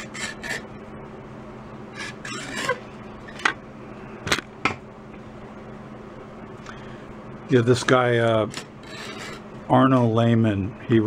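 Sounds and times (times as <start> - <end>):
faint steady hum: 0.0 - 11.0
chisel scraping wood: 8.8 - 9.4.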